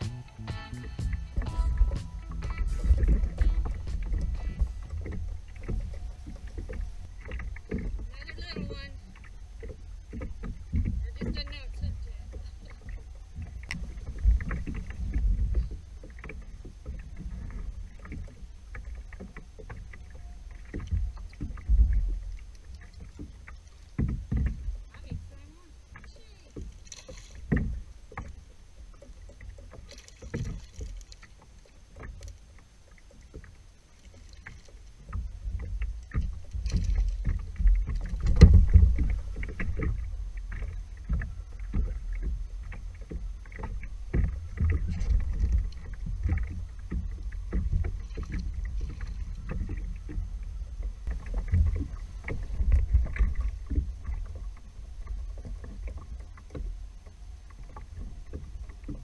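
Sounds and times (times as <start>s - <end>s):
low rumble: 0.0s - 18.0s, 35.2s - 59.0s
water slapping plastic hull: 0.7s - 59.0s.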